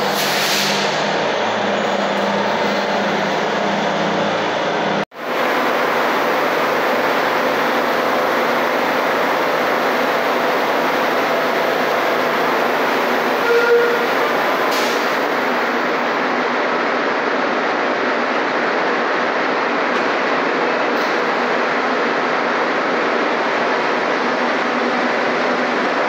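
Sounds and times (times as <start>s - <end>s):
short tone: 13.4s - 14.2s.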